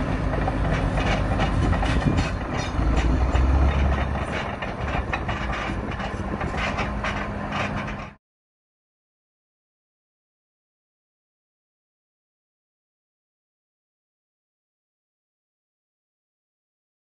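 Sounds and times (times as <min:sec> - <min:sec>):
bulldozer diesel engine under load: 0:00.0 - 0:08.2
steel tracks clanking: 0:00.0 - 0:08.2.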